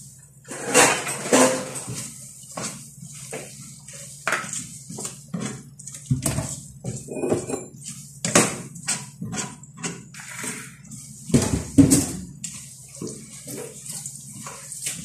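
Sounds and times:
metal utensils clinking and scraping: 0.5s - 1.9s
cookware clanks: 7.0s - 7.8s.

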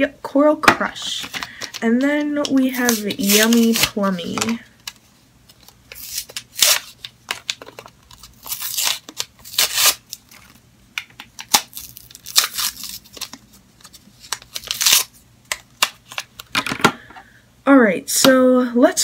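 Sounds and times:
packaging tearing and crinkling: 2.7s - 4.6s, 5.6s - 10.6s, 11.4s - 15.2s.

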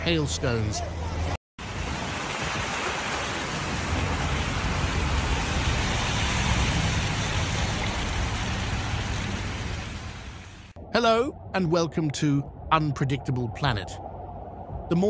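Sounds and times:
low rumble: 3.8s - 15.0s.

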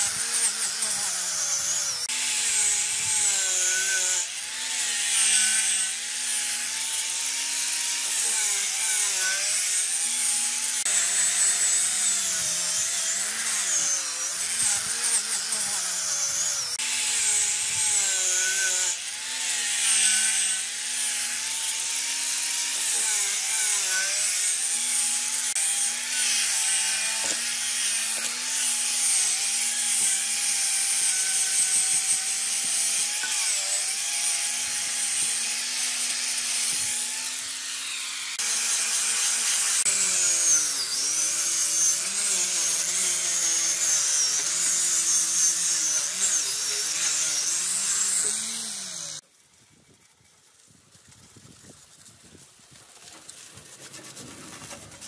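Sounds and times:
angle grinder motor whine: 0.0s - 49.2s
wire brush scratching metal: 52.7s - 55.0s.

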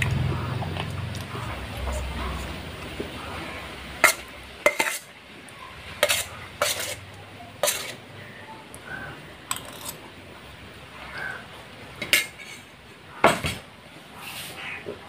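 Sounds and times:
spoon clinking on steel plate: 4.0s - 5.1s, 7.6s - 8.0s, 9.5s - 10.0s.

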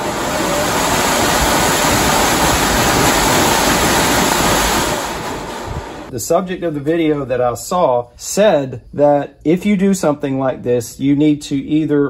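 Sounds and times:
blower fan rushing air: 0.0s - 6.2s.

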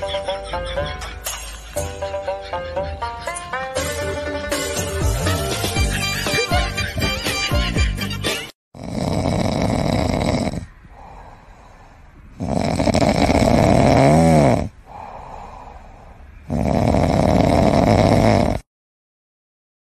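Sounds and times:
dog snoring: 8.8s - 11.1s, 12.4s - 14.8s, 16.4s - 18.7s.

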